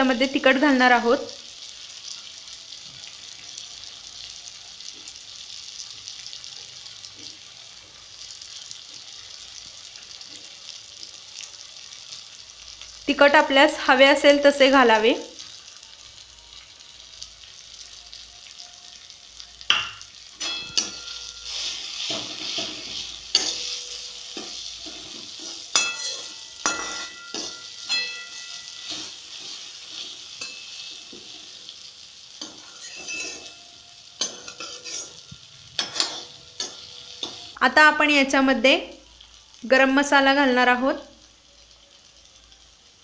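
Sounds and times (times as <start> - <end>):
masala sizzling in oil: 0.0 - 43.0
spoon scraping and knocking pan: 19.7 - 31.8, 32.4 - 37.6
pan ringing: 20.4 - 21.6, 23.2 - 29.6, 32.5 - 35.2.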